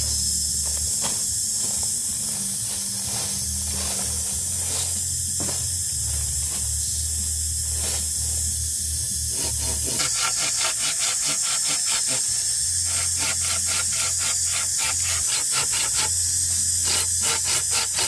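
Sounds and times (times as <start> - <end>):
steady high hiss: 0.0 - 18.0
hand saw cutting wood: 9.3 - 18.0.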